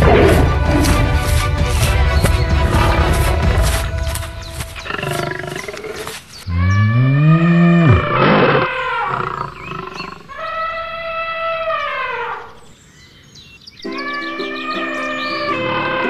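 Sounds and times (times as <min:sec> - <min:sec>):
background music: 0:00.0 - 0:05.6, 0:13.8 - 0:16.0
cartoon animal roars: 0:06.5 - 0:12.4.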